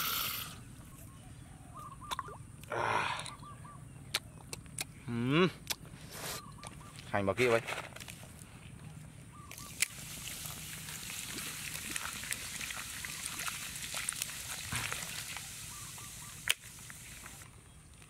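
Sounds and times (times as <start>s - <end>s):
liquid pouring and splashing: 9.6s - 17.4s.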